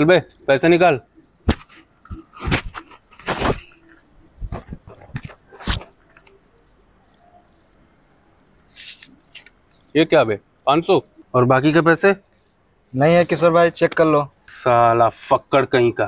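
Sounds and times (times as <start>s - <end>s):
crickets chirping: 0.0s - 16.0s
rustling handling noises: 1.5s - 6.3s.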